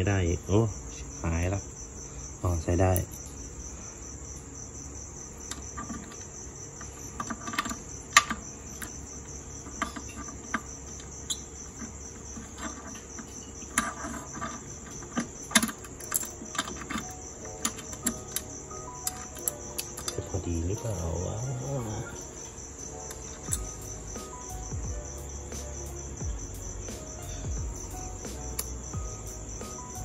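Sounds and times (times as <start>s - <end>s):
cricket chirping: 0.0s - 30.0s
small metal clicks and taps: 5.4s - 9.0s, 9.6s - 20.2s.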